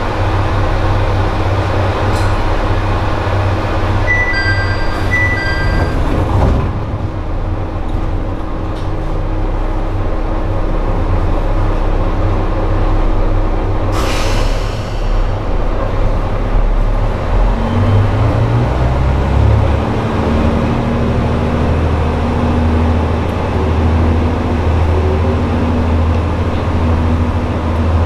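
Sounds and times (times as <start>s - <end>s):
two-note chime: 4.1s - 6.0s
short hiss: 14.0s - 15.4s
brief rush of sound: 14.0s - 15.6s.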